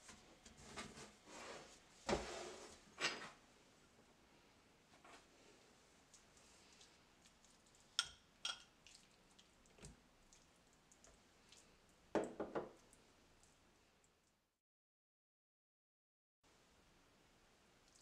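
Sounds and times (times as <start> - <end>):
spoon scraping and dabbing: 6.6 - 11.6
metal spoon clinking glass bowl: 8.0 - 8.7.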